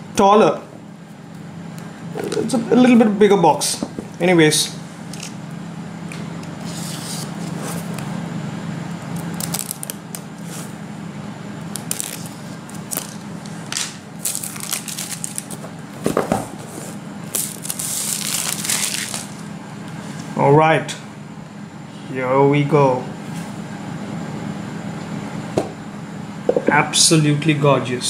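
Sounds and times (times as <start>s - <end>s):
cellophane crinkling: 9.2s - 10.6s, 11.7s - 15.7s, 17.3s - 19.5s
knife blade scraping shrink-wrap: 14.2s - 15.6s, 17.3s - 19.4s.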